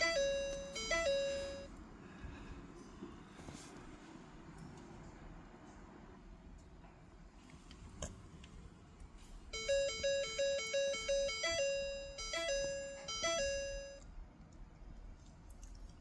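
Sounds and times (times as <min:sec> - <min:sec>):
electronic chime tones: 0:00.0 - 0:01.7, 0:09.6 - 0:14.0.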